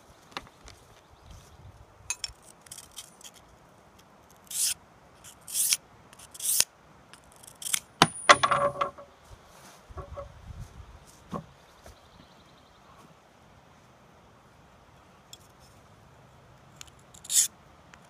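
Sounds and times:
bit scraping on sharpening plate: 0:04.4 - 0:06.6, 0:17.2 - 0:17.5
sharp metallic clink: 0:07.6 - 0:08.9.

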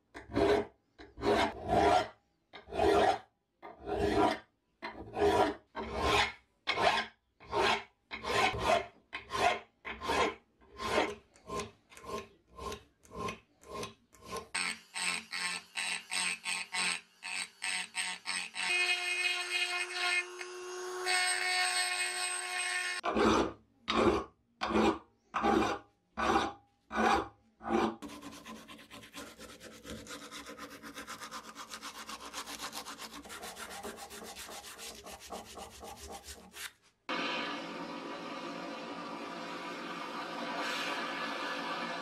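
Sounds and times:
rotary tool grinding metal: 0:05.2 - 0:27.2
sanding with abrasive cloth: 0:28.0 - 0:36.8.

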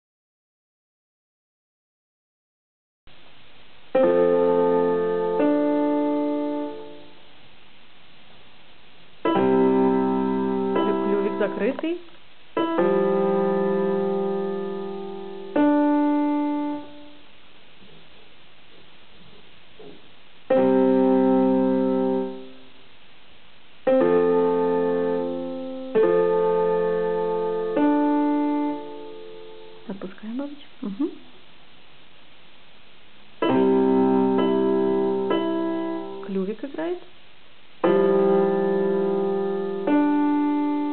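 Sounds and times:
electronic keyboard piano notes: 0:03.9 - 0:07.2, 0:09.2 - 0:12.0, 0:12.6 - 0:17.2, 0:20.5 - 0:22.6, 0:23.9 - 0:30.0, 0:33.4 - 0:37.0, 0:37.8 - 0:40.9.

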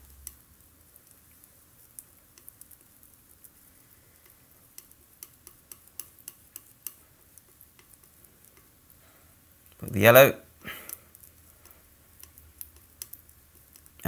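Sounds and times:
palette knife clicks and taps: 0:04.8 - 0:07.0.

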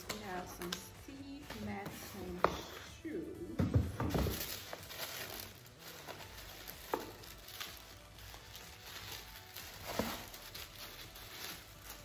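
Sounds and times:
paper and plastic bag rustling: 0:04.3 - 0:12.0.

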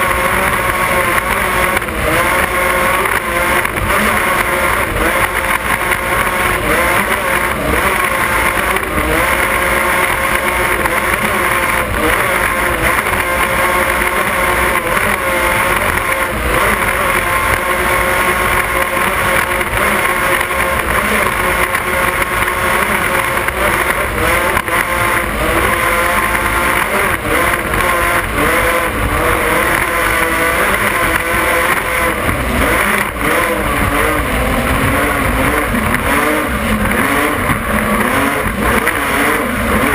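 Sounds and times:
powerboat engines running hard: 0:00.0 - 0:39.9.

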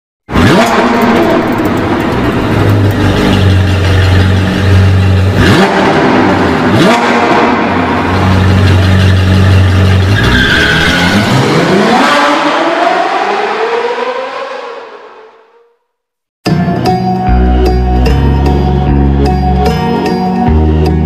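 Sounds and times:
sports car engine revving: 0:00.3 - 0:15.3.

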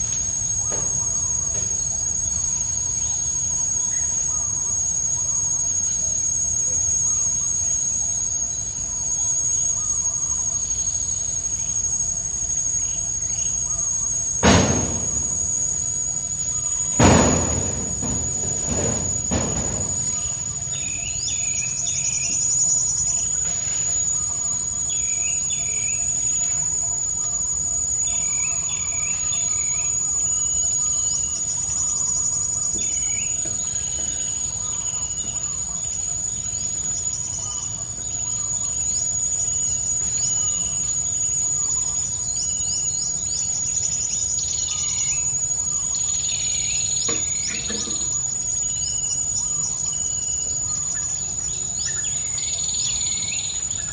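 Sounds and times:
high-pitched insect drone: 0:00.0 - 0:53.9
birds chirping: 0:16.6 - 0:26.2.

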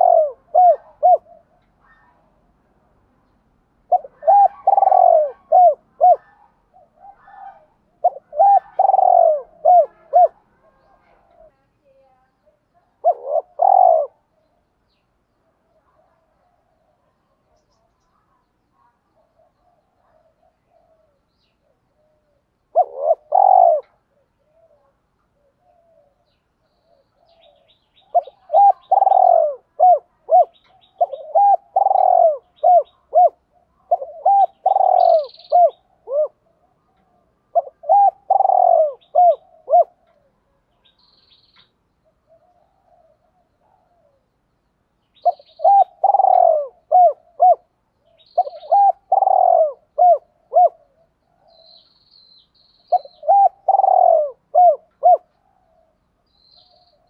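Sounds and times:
dove cooing: 0:00.0 - 0:02.2, 0:03.8 - 0:11.6, 0:12.8 - 0:14.6, 0:19.2 - 0:40.9, 0:42.0 - 0:44.3, 0:45.2 - 0:51.9, 0:52.8 - 0:56.0.

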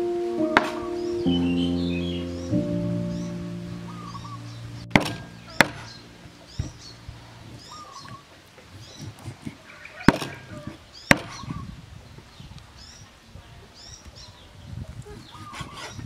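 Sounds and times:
birds chirping: 0:00.4 - 0:09.1.

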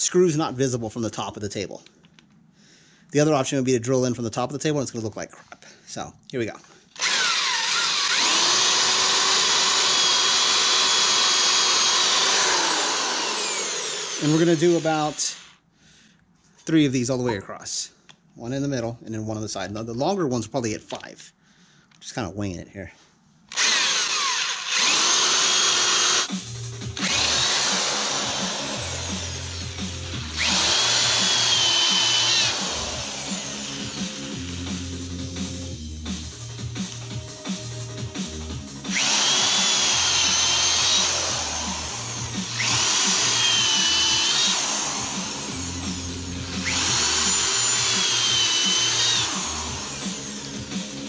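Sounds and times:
electric drill boring into wood: 0:07.0 - 0:15.6, 0:23.5 - 0:26.4, 0:27.0 - 0:35.3, 0:38.9 - 0:51.0.

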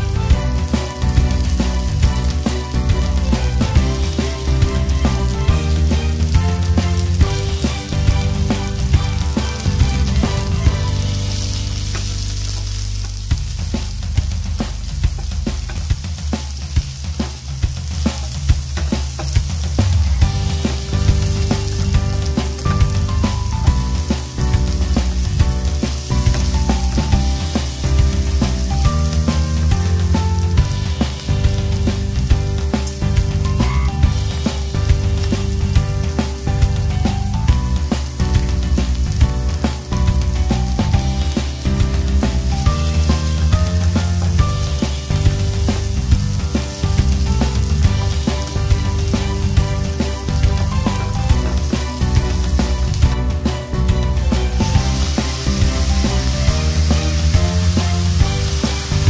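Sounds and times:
background music with steady beat: 0:00.0 - 0:59.0
onion sizzling in oil: 0:00.0 - 0:59.0.

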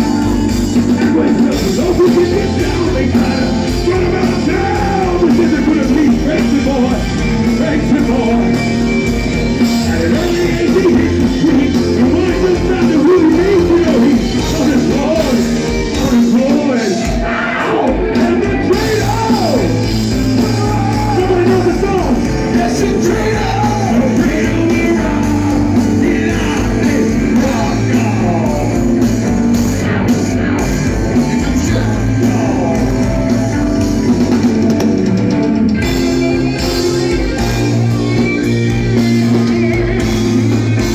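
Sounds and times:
person singing: 0:00.0 - 0:08.9, 0:09.5 - 0:29.1, 0:31.1 - 0:35.2
distorted electric guitar: 0:00.0 - 0:40.9
drums: 0:00.0 - 0:40.9.

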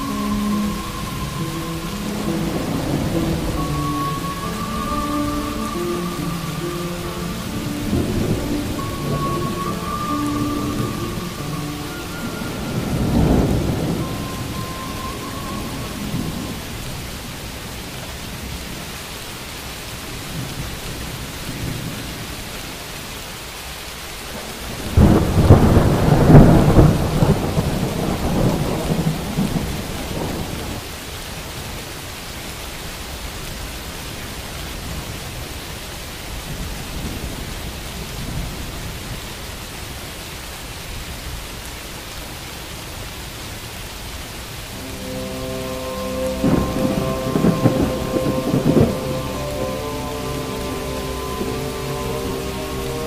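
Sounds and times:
thunder rumbling: 0:00.0 - 0:18.5, 0:24.3 - 0:30.9, 0:44.7 - 0:53.0
steady rain: 0:00.0 - 0:53.0.

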